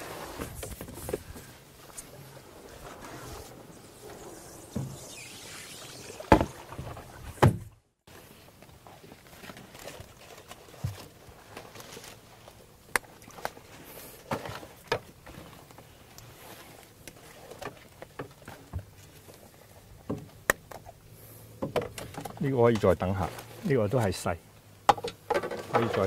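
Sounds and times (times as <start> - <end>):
loud knocks on boat: 7.4 - 7.7
water sloshing: 21.8 - 24.3.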